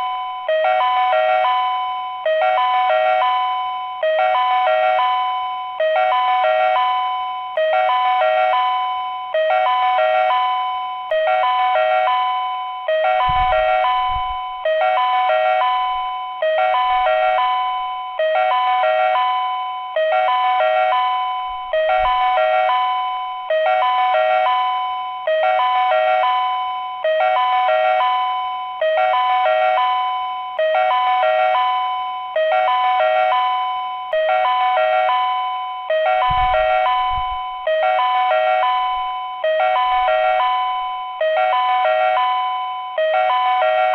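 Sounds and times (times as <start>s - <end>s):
electronic ding-dong chime: 0.0s - 43.9s.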